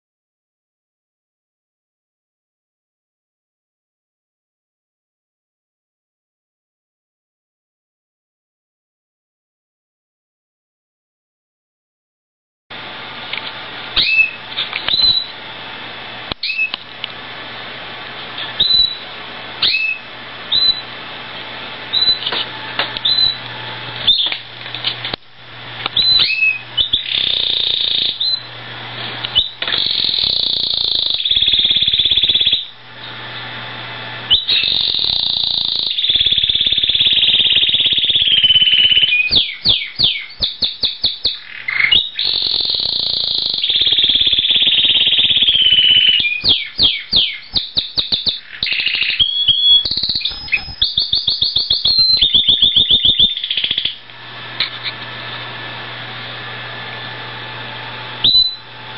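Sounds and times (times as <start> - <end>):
canary singing: 14.0 - 15.4, 16.3 - 16.8, 18.4 - 20.9, 21.9 - 22.4, 23.0 - 24.4, 25.9 - 28.6, 29.2 - 32.8, 34.3 - 54.0, 58.2 - 58.7.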